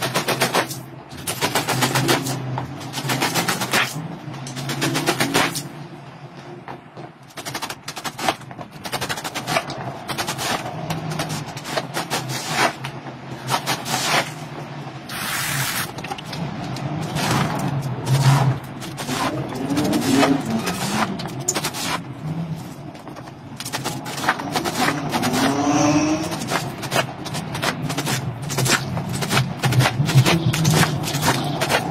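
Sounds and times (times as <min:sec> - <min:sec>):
rubber squeegee scraping wet rug: 0:10.2 - 0:14.4, 0:17.0 - 0:22.1.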